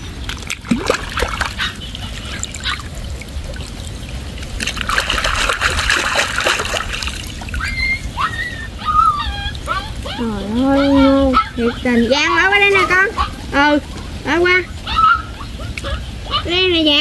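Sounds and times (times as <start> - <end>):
water splashing and trickling: 0.0 - 17.0
hands scooping through mud: 4.5 - 7.4.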